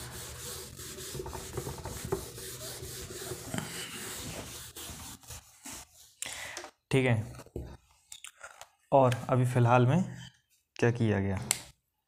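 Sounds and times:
scratchy rubbing noise: 0.0s - 6.1s.

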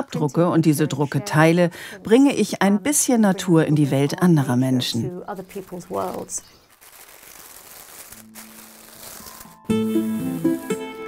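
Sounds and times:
faint hiss: 6.0s - 11.0s.

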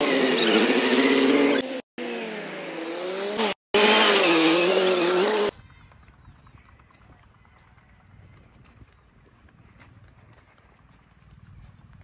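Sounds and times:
tractor diesel engine revving: 0.0s - 5.5s.

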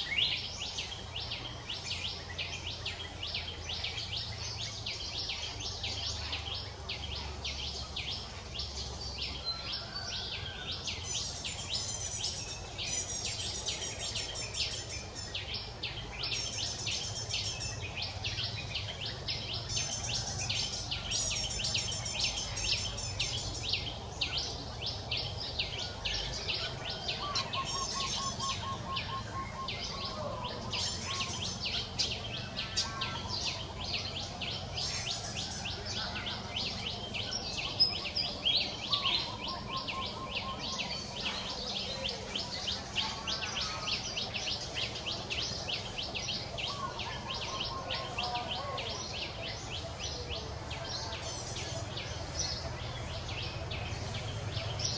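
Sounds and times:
birds and insects chirping: 0.0s - 54.9s
bird trill: 9.5s - 50.0s.

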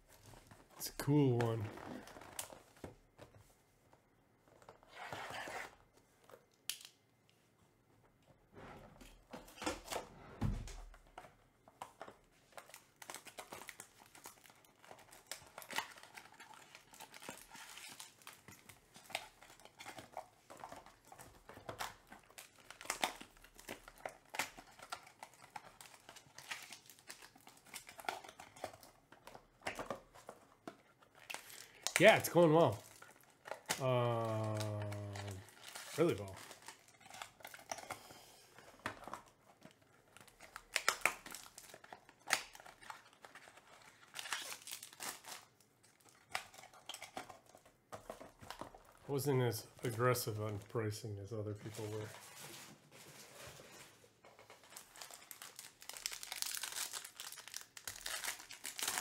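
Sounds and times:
plastic wrap crinkling and tearing: 0.0s - 2.8s, 11.8s - 59.0s
cards clicking and rustling: 11.1s - 50.7s, 53.6s - 59.0s.

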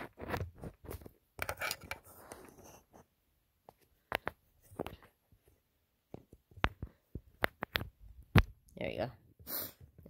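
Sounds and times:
phone handling rustling: 0.9s - 2.1s.

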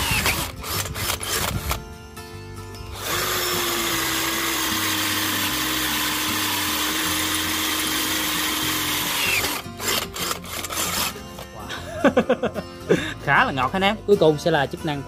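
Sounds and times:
cordless drill boring into steel: 0.0s - 1.8s, 2.9s - 11.2s.

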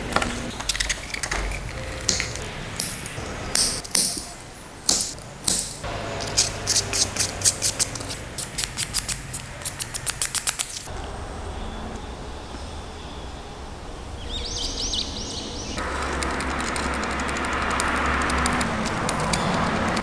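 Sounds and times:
sandpaper rubbing on wood: 6.2s - 10.9s.

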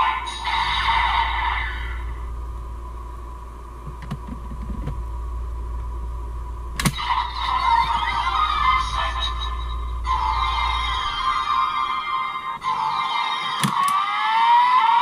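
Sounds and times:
toy electronic sound effects: 0.0s - 2.0s, 6.9s - 15.0s.

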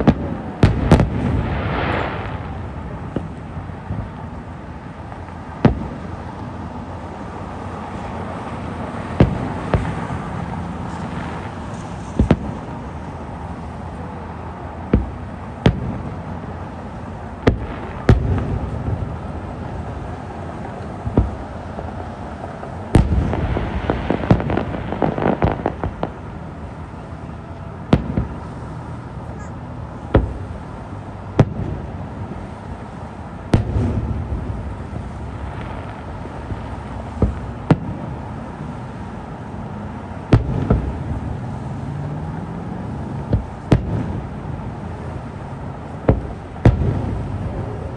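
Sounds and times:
crackling fireworks pops: 0.0s - 47.9s
distant fireworks booms: 0.0s - 47.9s.

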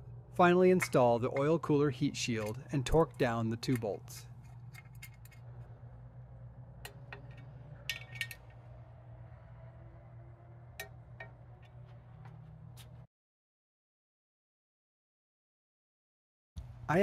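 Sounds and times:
steady low hum: 0.0s - 13.1s, 16.6s - 17.0s
light metallic clinks and ticks: 3.6s - 5.5s.

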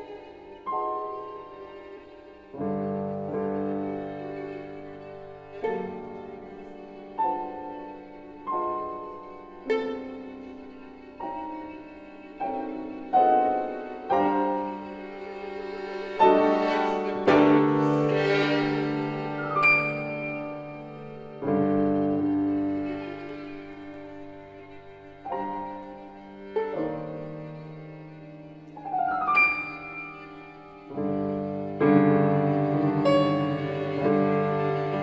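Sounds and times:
held violin notes: 0.0s - 35.0s
piano chords: 0.0s - 35.0s.

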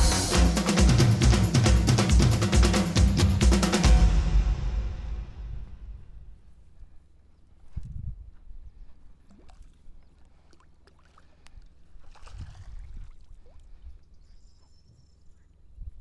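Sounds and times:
steady low rumble: 3.3s - 9.0s
net splashing in water: 12.0s - 13.6s.

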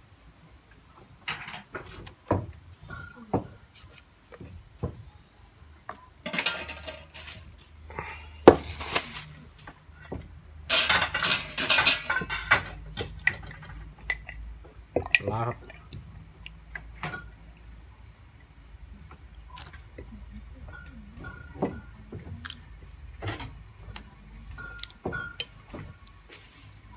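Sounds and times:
kitchen utensils knocking: 6.2s - 7.2s, 10.7s - 13.8s, 24.6s - 26.0s
scraping and rattling: 6.2s - 7.9s, 10.7s - 13.9s.

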